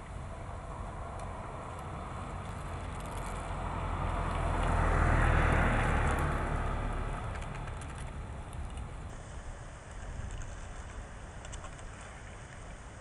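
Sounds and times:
vehicle passing: 0.0 - 9.1
traffic rumble: 0.0 - 13.0.

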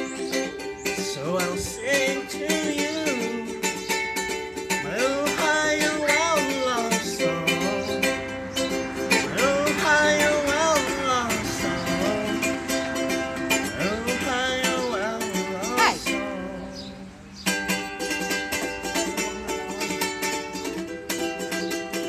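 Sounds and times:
person singing: 0.0 - 3.9, 4.7 - 8.3, 9.1 - 17.2
ukulele strumming: 0.0 - 22.0.

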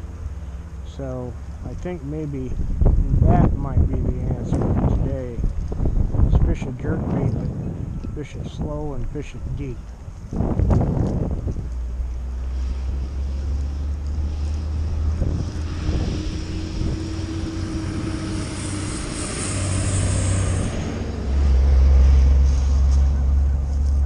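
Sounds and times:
wind buffeting microphone: 1.7 - 24.0.

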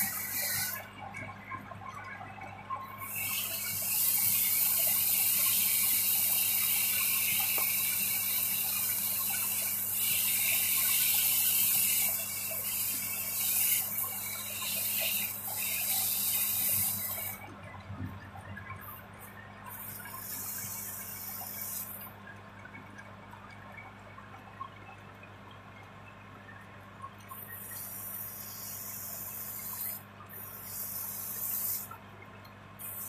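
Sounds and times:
sandpaper hissing on spinning wood: 0.0 - 0.8, 3.1 - 17.3, 27.8 - 31.9.

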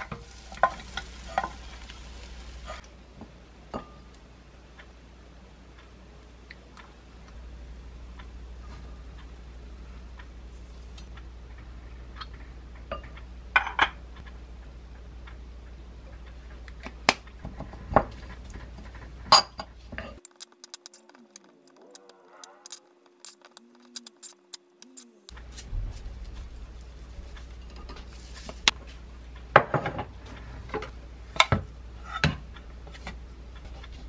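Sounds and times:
spoon scraping while stirring: 20.2 - 25.3.

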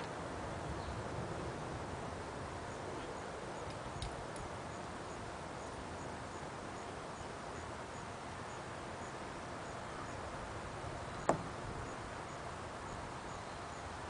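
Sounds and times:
outdoor background hiss: 0.0 - 14.0
light clicks: 3.6 - 4.5.

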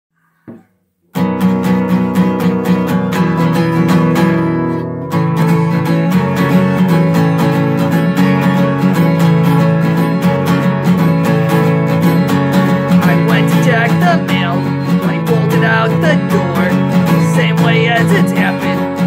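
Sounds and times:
acoustic guitar strumming: 1.1 - 19.0.

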